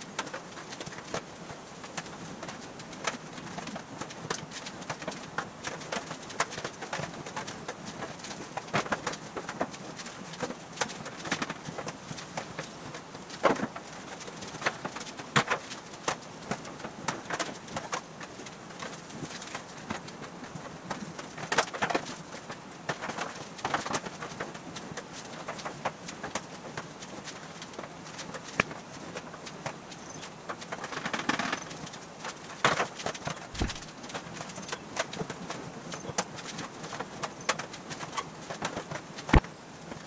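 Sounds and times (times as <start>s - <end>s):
aluminum sheet rattling: 27.5s - 40.0s
metal sheet knocking and rattling: 33.5s - 33.9s.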